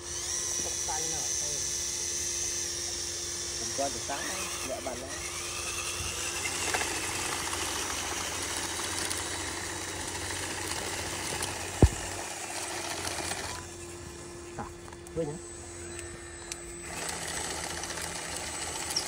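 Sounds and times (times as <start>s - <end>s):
toy bulldozer motor and gearbox: 0.0s - 19.0s
sharp thump: 11.8s - 12.2s.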